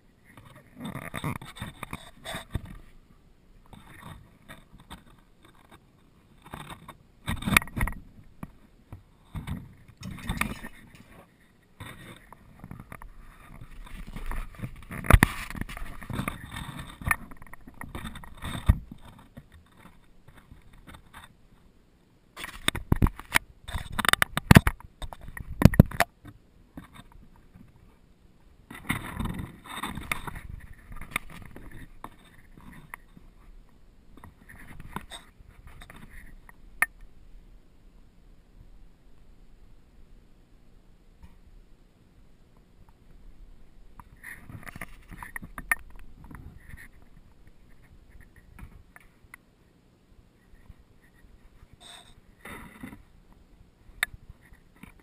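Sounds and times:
camera strap rubbing and scraping: 0.3 - 3.0, 3.7 - 5.8, 9.3 - 21.3, 28.7 - 33.4, 34.2 - 36.4, 44.1 - 48.7.

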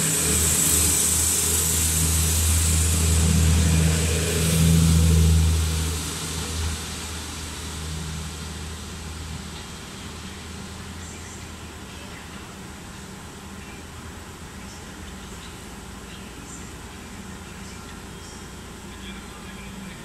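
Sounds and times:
hiss: 0.0 - 11.6
diesel railcar engine drone: 0.0 - 20.0.

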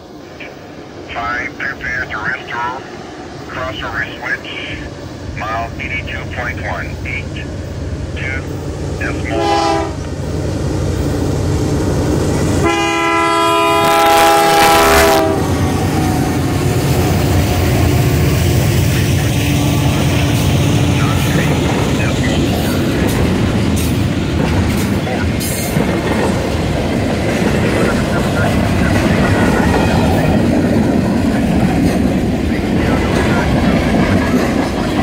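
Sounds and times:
train cars rumbling and clacking: 0.0 - 35.0
locomotive horn blasts: 9.3 - 10.0, 12.6 - 15.6.

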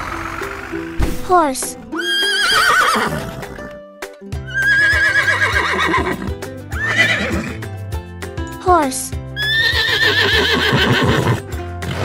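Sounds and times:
background music: 0.0 - 12.0
horse neighing: 2.0 - 3.7, 4.5 - 7.6, 9.4 - 12.0.

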